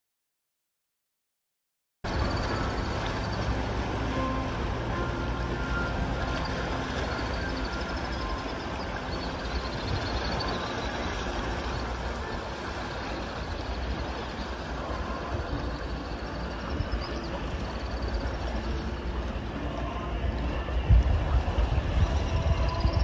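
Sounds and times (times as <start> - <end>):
wind on microphone: 6.0 - 23.0.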